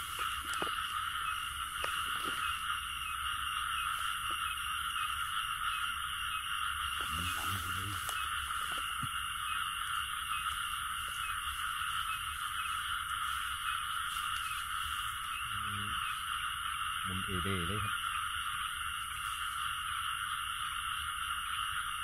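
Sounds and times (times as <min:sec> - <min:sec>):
frogs chorus: 0:00.0 - 0:22.0
low muffled sound: 0:07.0 - 0:09.2.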